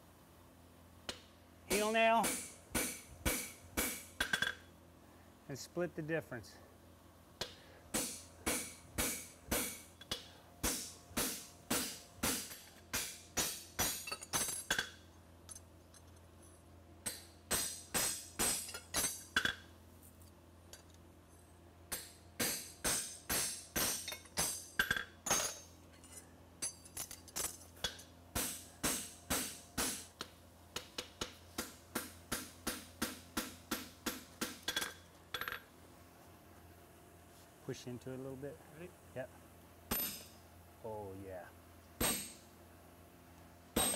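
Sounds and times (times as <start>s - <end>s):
hammer striking steel on anvil: 1.1s - 4.6s, 7.4s - 14.9s, 17.0s - 19.6s, 21.9s - 25.6s, 27.8s - 35.6s, 39.9s - 40.4s, 42.0s - 42.4s.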